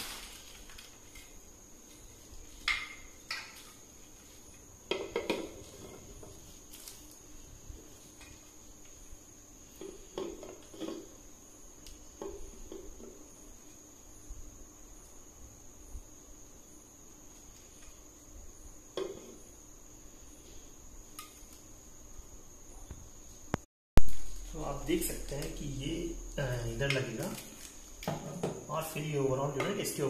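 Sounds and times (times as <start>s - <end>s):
high thin whine: 23.6s - 27.9s.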